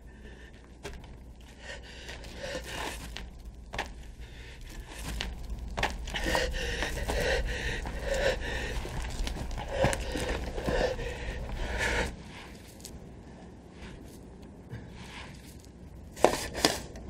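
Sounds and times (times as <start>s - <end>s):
man breathing hard: 0.0s - 12.7s.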